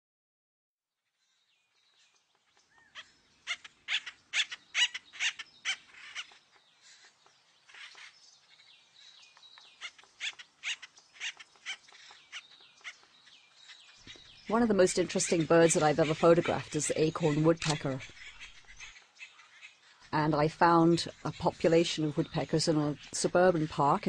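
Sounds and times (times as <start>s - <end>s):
woodpecker calls: 1.3s - 24.0s.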